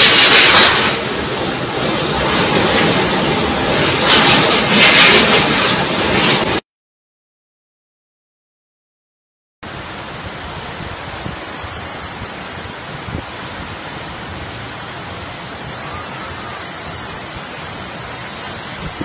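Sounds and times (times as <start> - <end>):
floodwater torrent rushing: 0.0 - 4.8, 9.6 - 19.0
rain: 0.0 - 6.6, 9.6 - 19.0
storm wind: 0.0 - 6.6, 9.6 - 19.0
wind rumbling on microphone: 0.0 - 6.6, 9.7 - 19.0.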